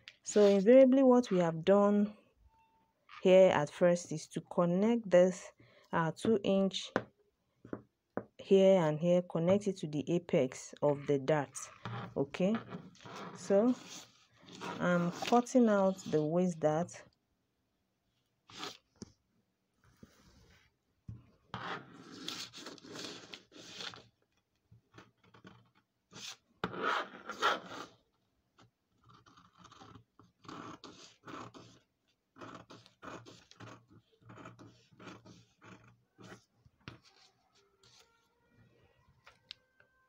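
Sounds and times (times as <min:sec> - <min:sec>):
paper rustling: 0:36.8 - 0:38.3.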